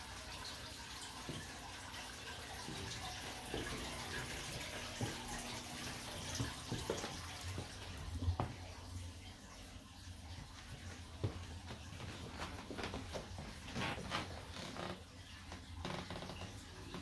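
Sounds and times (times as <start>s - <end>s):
aquarium filter water trickling: 0.0s - 17.0s
soft footsteps: 2.6s - 8.7s, 10.4s - 17.0s.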